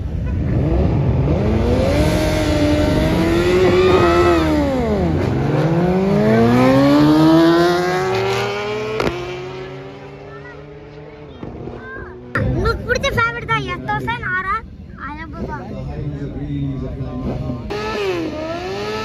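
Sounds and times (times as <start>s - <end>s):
racing engine accelerating: 0.4s - 12.6s, 17.1s - 19.0s.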